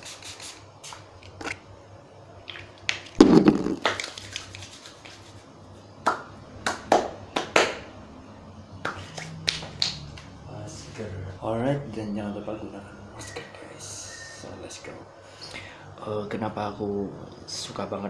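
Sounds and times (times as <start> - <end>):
hands rubbing together: 3.2 - 5.6.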